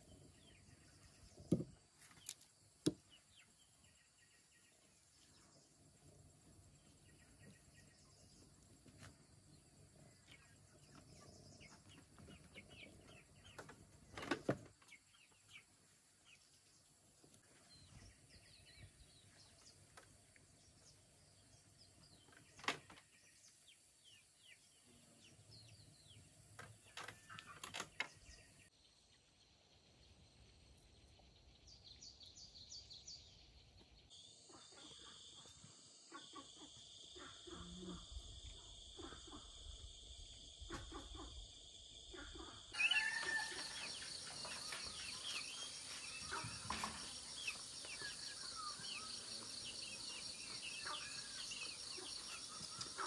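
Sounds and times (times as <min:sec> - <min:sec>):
bird chirps: 0:42.0 - 0:53.0.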